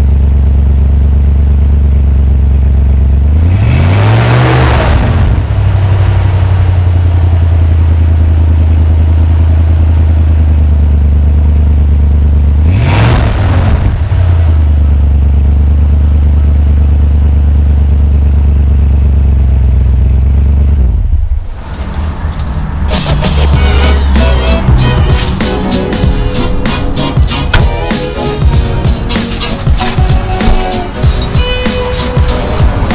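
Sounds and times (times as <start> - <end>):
car engine idling: 0.0 - 3.8, 4.9 - 32.9
engine revving: 3.0 - 7.9, 12.3 - 15.9, 18.7 - 32.9.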